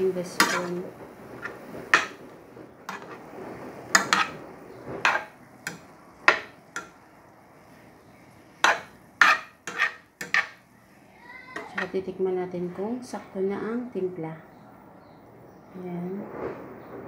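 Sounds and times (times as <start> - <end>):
spoon scraping a frying pan: 0.0 - 7.0, 8.5 - 10.7, 11.6 - 12.1.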